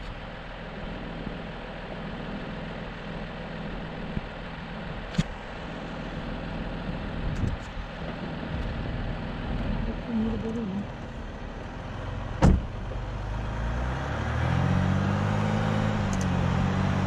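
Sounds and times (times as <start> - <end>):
vehicle engine and road rumble: 0.0 - 17.0
sharp knock: 12.4 - 12.7.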